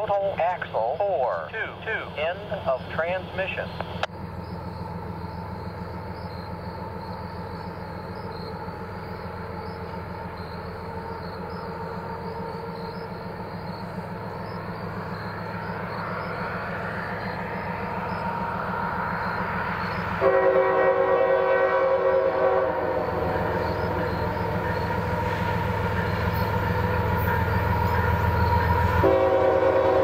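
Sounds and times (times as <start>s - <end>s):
diesel locomotive engine rumble: 0.0s - 30.0s.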